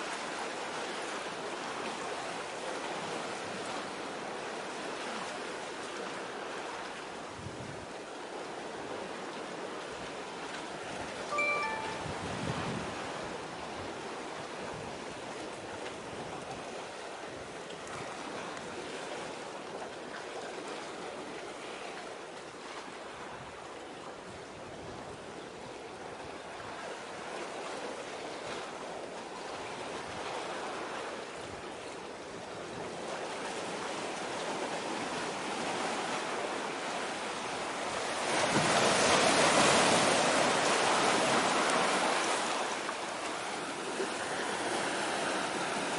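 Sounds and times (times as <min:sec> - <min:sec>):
sea surf rushing: 0:09.8 - 0:15.4, 0:32.8 - 0:45.9.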